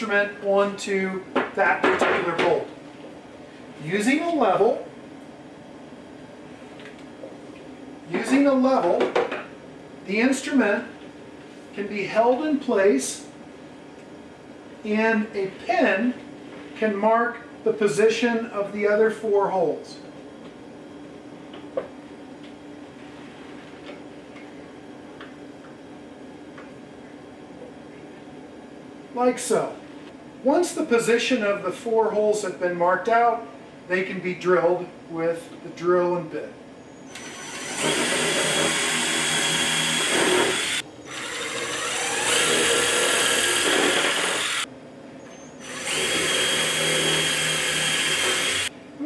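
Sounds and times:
power drill boring into wood: 0:37.1 - 0:44.7, 0:45.6 - 0:48.7.

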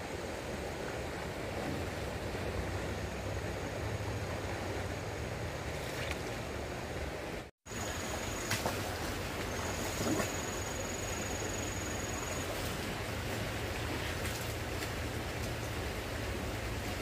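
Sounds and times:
rushing outdoor ambient noise: 0:00.0 - 0:17.0
faint high whine: 0:07.7 - 0:13.0.

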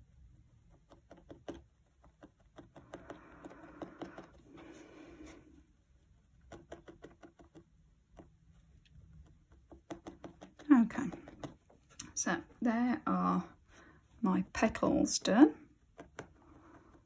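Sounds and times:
felting needle ticking: 0:06.4 - 0:12.3.

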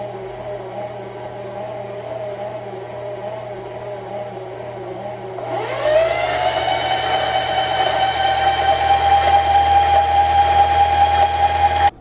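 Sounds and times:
sewing machine motor whining: 0:05.4 - 0:11.9.

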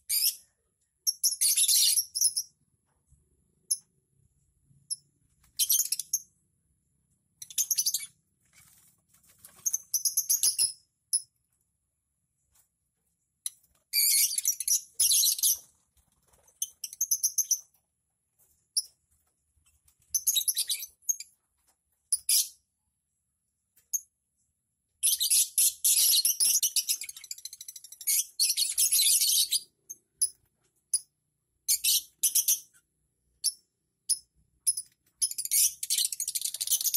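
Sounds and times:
lovebirds chirping: 0:07.4 - 0:08.8, 0:20.0 - 0:21.4.

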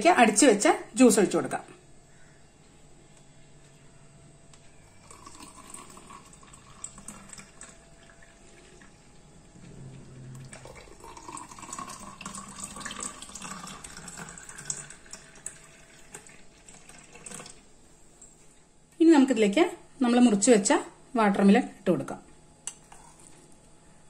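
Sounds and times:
milkshake pouring into glass: 0:04.9 - 0:17.7.

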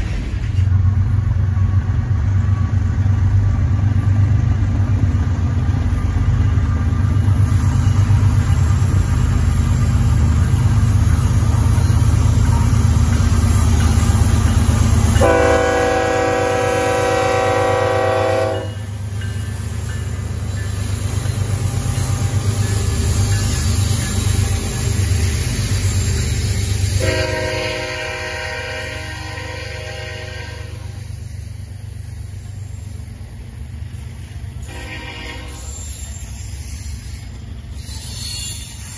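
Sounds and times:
diesel locomotive engines rumbling: 0:00.0 - 0:38.9
train horn blast: 0:15.2 - 0:18.9, 0:27.0 - 0:31.0, 0:34.6 - 0:35.8.

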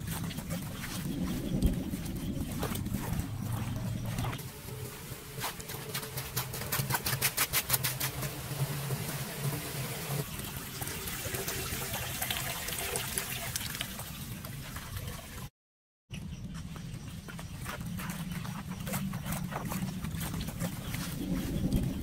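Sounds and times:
floodwater splashing at drain: 0:05.7 - 0:15.5.

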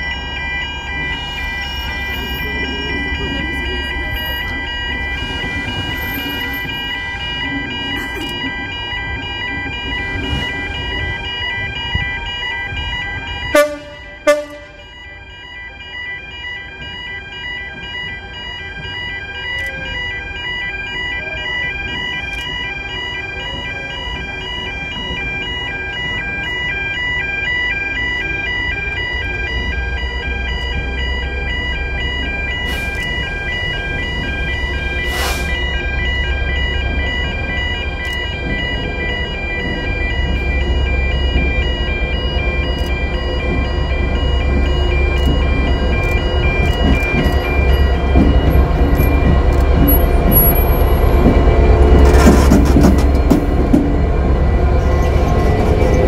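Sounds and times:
level crossing alarm pulsing: 0:00.0 - 0:56.0
diesel locomotive rumble: 0:28.7 - 0:56.0.

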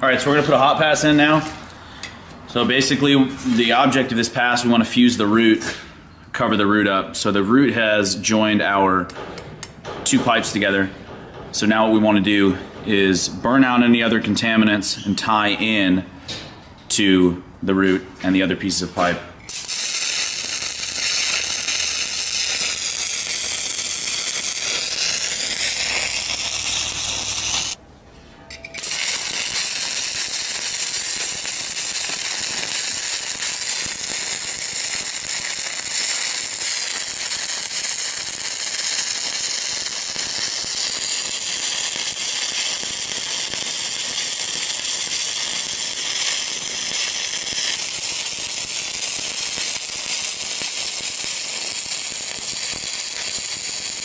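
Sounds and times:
welding arc crackling and sizzling: 0:19.5 - 0:27.8, 0:28.8 - 0:54.0.

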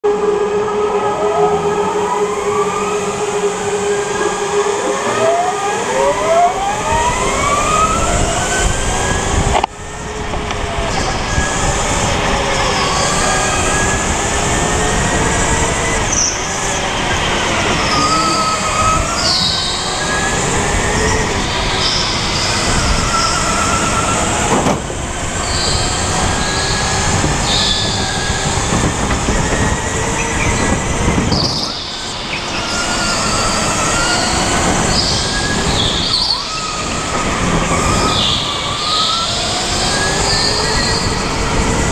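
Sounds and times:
electric kart motor whine: 0:00.1 - 0:41.9
tyre squeals: 0:17.7 - 0:24.4.

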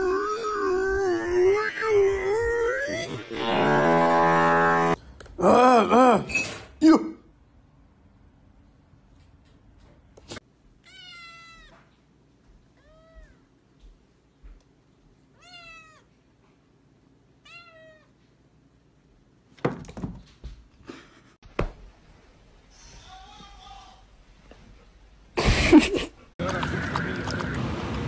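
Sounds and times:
cat meowing: 0:10.8 - 0:11.9, 0:12.8 - 0:13.5, 0:15.4 - 0:16.1, 0:17.4 - 0:18.1
loud thumps and knocks: 0:19.6 - 0:20.5.

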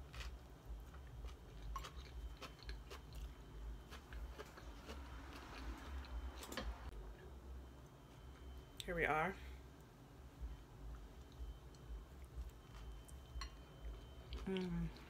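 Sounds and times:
person chewing food: 0:00.0 - 0:06.7, 0:11.0 - 0:15.0.

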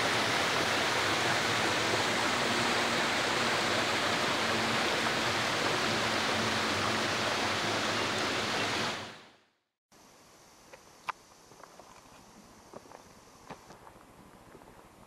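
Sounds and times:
stream rushing over rocks: 0:00.0 - 0:09.2.

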